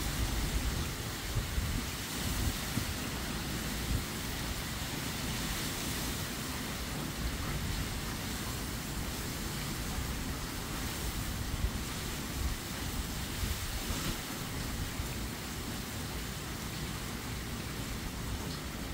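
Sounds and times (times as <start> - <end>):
wind buffeting microphone: 0.0 - 6.0, 9.6 - 15.1
wind rushing through palm fronds: 0.0 - 18.9.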